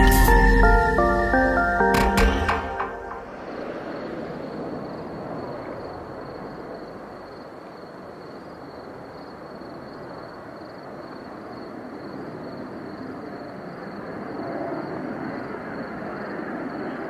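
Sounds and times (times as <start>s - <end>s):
distant jet engines rumbling: 2.9s - 9.1s.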